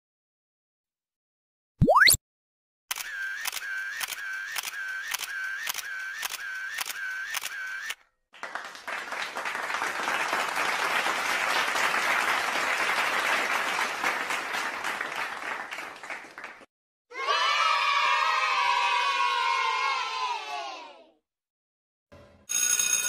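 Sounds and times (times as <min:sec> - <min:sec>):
camera shutter clicking: 0:02.9 - 0:08.0
applause: 0:08.3 - 0:16.7.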